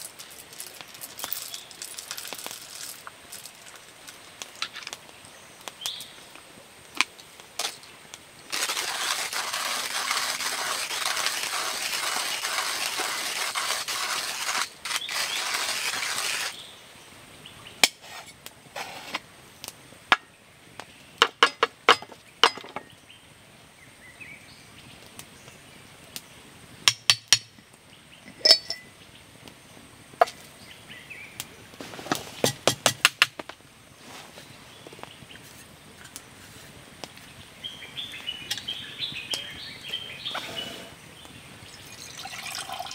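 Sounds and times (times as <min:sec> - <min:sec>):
cups clinking and tapping: 0:28.3 - 0:28.9, 0:41.9 - 0:42.9.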